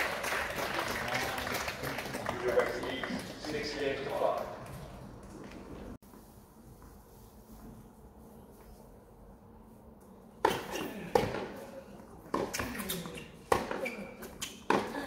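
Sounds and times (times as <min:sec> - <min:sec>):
rackets hitting tennis ball: 0:10.4 - 0:11.6, 0:12.2 - 0:15.0
tennis ball bouncing: 0:12.3 - 0:15.0.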